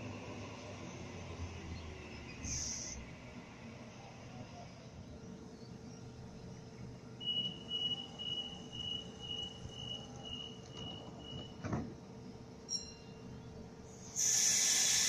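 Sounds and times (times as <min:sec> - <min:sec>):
train door warning beeps: 0:07.2 - 0:11.9.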